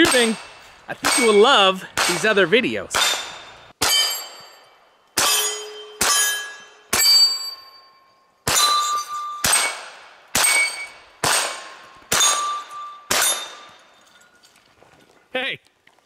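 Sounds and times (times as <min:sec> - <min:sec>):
steel target plate ringing: 0:00.0 - 0:02.4, 0:03.0 - 0:14.3
gunshots: 0:00.0 - 0:04.3, 0:09.4 - 0:13.7.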